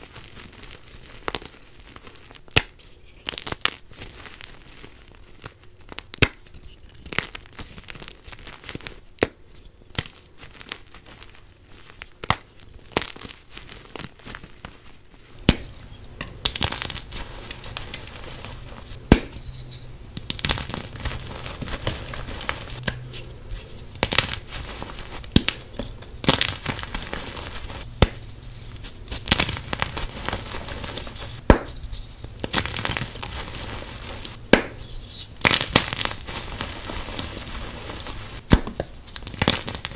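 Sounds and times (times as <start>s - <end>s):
chalk crunching and snapping: 15.4s - 39.9s.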